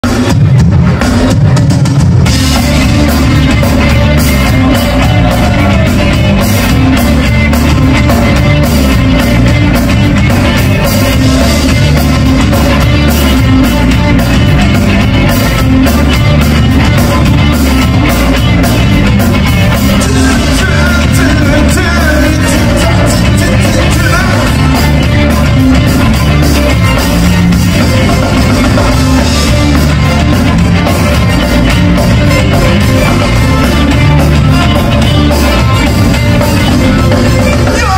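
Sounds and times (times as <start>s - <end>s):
bass guitar: 0.0s - 37.9s
drum kit steady beat: 0.0s - 37.9s
electric guitar: 0.0s - 37.9s.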